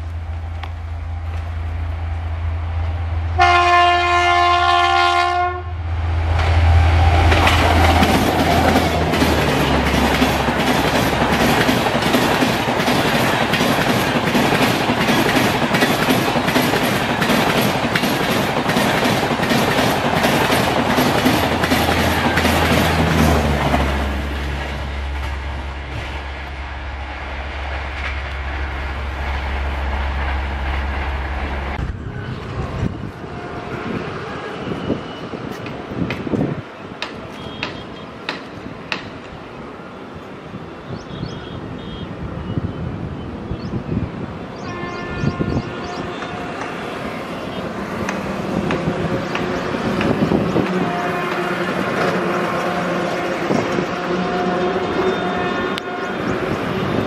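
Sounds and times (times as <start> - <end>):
train horn blast: 3.4 - 5.8, 31.8 - 35.2, 44.6 - 48.0, 48.6 - 57.0
train wheels clickety-clack: 7.2 - 26.2, 35.4 - 39.4, 47.9 - 54.3.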